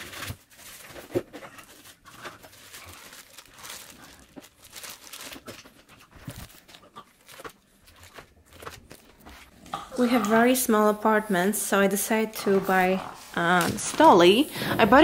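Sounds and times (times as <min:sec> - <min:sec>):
plastic packaging crinkling: 0:00.0 - 0:09.5.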